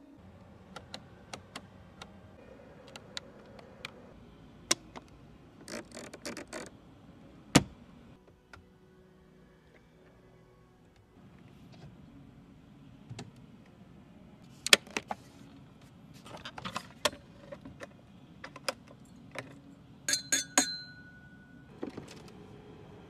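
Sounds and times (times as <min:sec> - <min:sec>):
crystal glasses clinking: 0:20.1 - 0:21.7.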